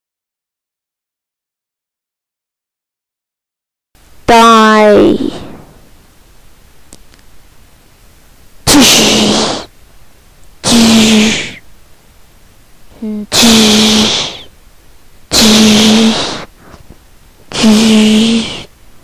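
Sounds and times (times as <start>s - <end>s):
steady low hum: 4.0s - 19.0s.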